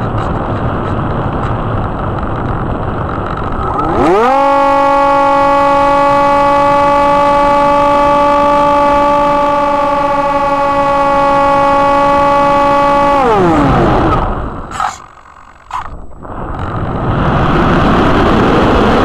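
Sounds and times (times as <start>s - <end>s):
model plane motor whining: 2.2s - 17.1s.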